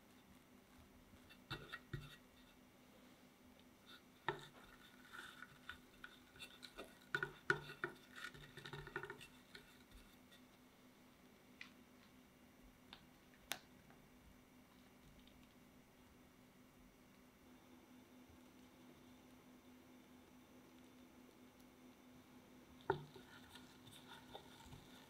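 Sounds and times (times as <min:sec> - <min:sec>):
spatula scraping frosting: 0:00.8 - 0:02.7, 0:03.8 - 0:10.5, 0:22.9 - 0:25.0.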